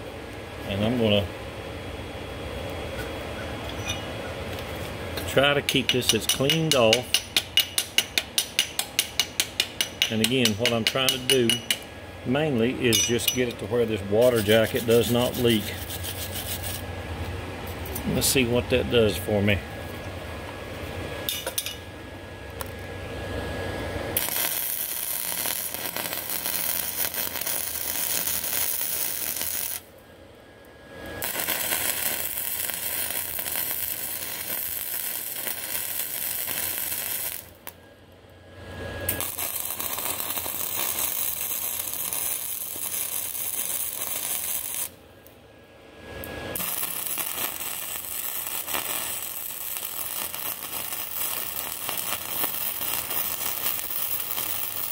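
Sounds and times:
welder arc crackling: 4.5 - 16.9, 24.1 - 30.0, 31.0 - 37.8, 39.0 - 45.0, 46.2 - 54.9.

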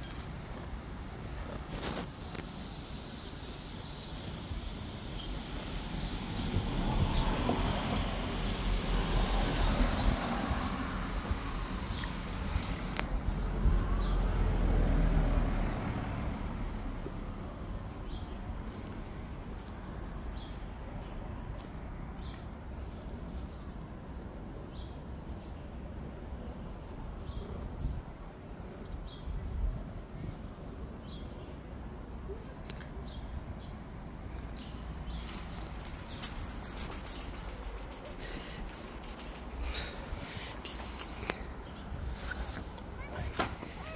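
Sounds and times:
distant traffic rumble: 0.0 - 43.9
small bird chirping faintly: 34.3 - 40.0, 40.6 - 41.8
hissy rustling: 35.2 - 39.7.

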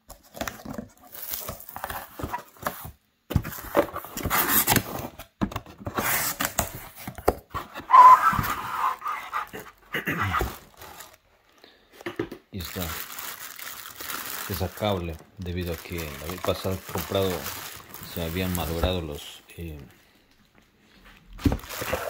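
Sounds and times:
pulp packing rustling: 0.1 - 5.1, 6.0 - 11.9, 12.6 - 19.2, 21.2 - 22.0
cardboard carton being opened: 0.2 - 11.2, 21.4 - 22.0
squeaky scrape: 7.6 - 10.5.

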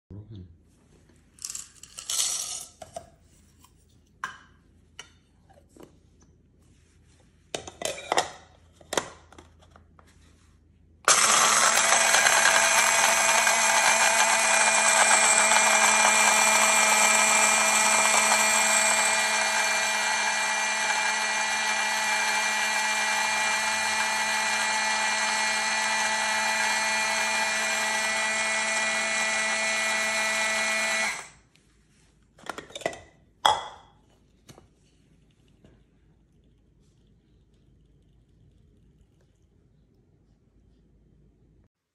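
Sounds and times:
coffee beans rattling into bowl: 1.4 - 2.8
coffee grinder motor whine: 11.1 - 31.4.

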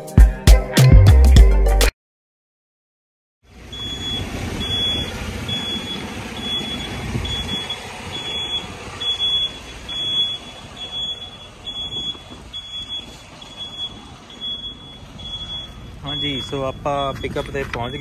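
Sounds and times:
low engine rumble: 3.4 - 18.0
reversing alarm beeping: 3.7 - 18.0.

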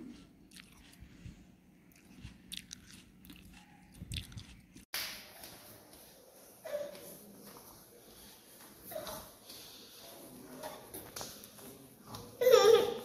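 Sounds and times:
toddler chewing apple: 0.0 - 4.9.

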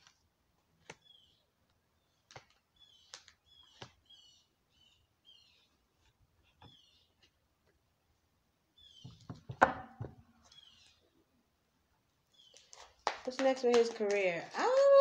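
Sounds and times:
bird chirps: 1.0 - 5.8, 6.6 - 7.3, 8.7 - 9.3, 10.4 - 11.2, 12.3 - 12.8.

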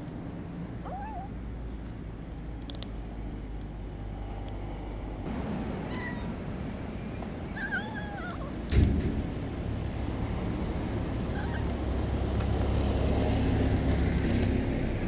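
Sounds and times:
kitten meowing: 0.9 - 1.3, 11.3 - 11.7.

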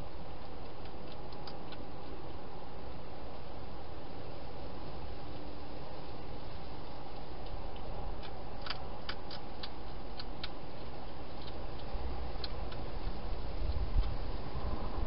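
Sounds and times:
hedgehog crunching food: 0.0 - 4.2, 5.3 - 15.0
steady hiss: 0.0 - 15.0.

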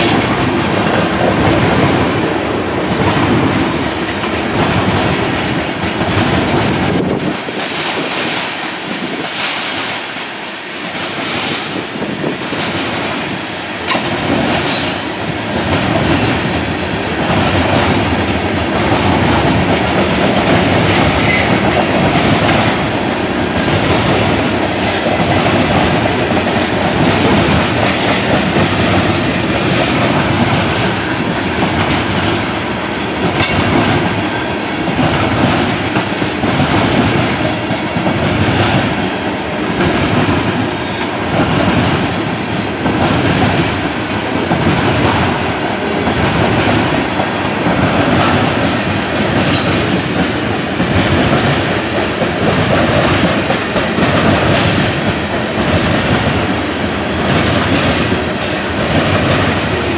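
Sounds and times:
train wheels rumbling on rail: 0.0 - 59.9
wheels clicking over rail joints: 4.1 - 39.0.

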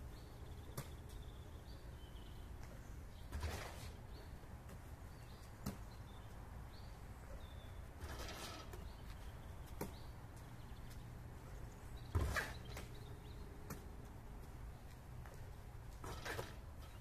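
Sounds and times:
birds chirping faintly: 0.0 - 17.0
basketball smacking on asphalt: 5.6 - 6.0, 9.6 - 10.1.

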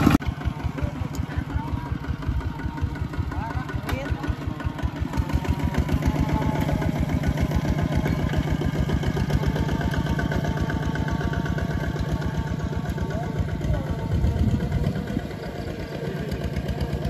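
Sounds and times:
diesel engine chugging: 0.0 - 17.0.

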